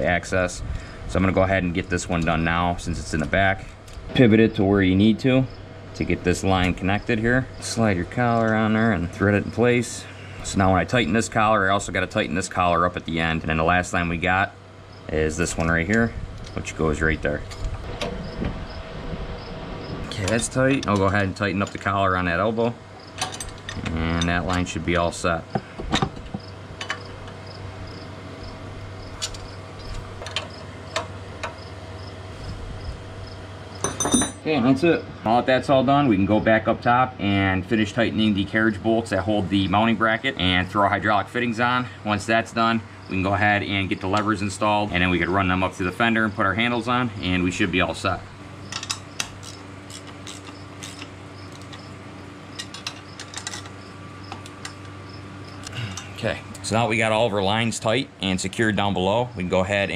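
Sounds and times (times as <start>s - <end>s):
steady low hum: 0.0s - 59.9s
cricket chirping: 3.8s - 11.9s, 14.6s - 34.4s, 41.0s - 56.7s
wrenches clinking on metal fitting: 23.2s - 24.8s, 33.8s - 34.5s, 48.7s - 51.9s, 52.5s - 53.8s
light metal clinks: 33.8s - 34.5s
ratchet wrench clicking: 48.7s - 51.9s.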